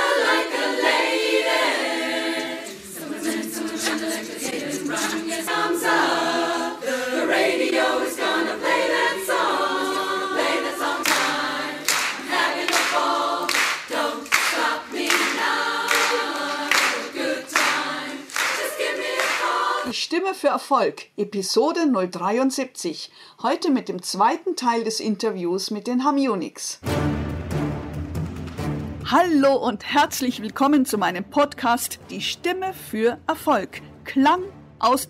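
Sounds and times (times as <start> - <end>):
women's chorus singing a cappella: 0.0 - 20.0.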